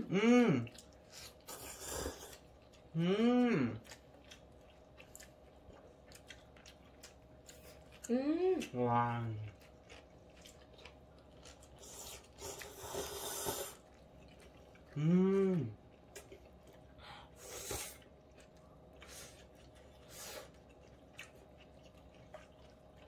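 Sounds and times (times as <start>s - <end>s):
person humming: 0.0s - 0.7s, 3.0s - 3.8s, 15.0s - 15.8s
person slurping noodles: 1.5s - 2.4s, 11.8s - 13.8s.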